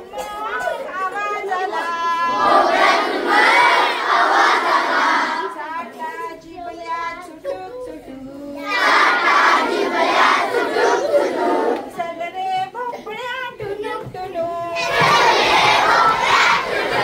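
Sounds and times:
woman singing alone: 0:00.0 - 0:02.4, 0:05.5 - 0:08.7, 0:11.8 - 0:15.0
boys singing together: 0:00.0 - 0:17.0.

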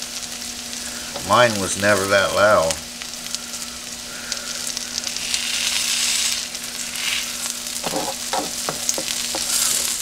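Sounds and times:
electric griddle buzz: 0:00.0 - 0:10.0
food sizzling on a griddle: 0:00.0 - 0:10.0
spatula scraping and tapping: 0:07.0 - 0:10.0.

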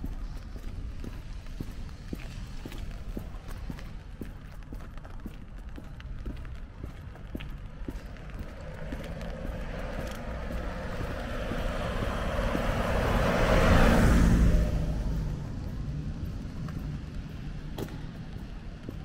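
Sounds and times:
car passing by: 0:08.0 - 0:18.3.

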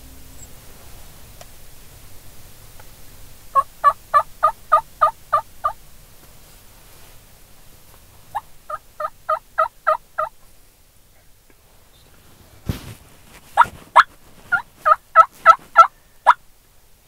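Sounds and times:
turkey call yelps: 0:03.5 - 0:05.8, 0:08.3 - 0:10.3, 0:13.6 - 0:16.4.

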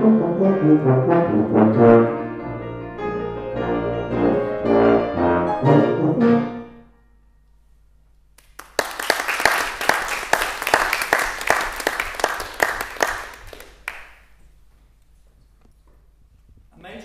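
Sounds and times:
tuba and piano chord: 0:00.0 - 0:07.2
audience applauding: 0:08.4 - 0:14.3.

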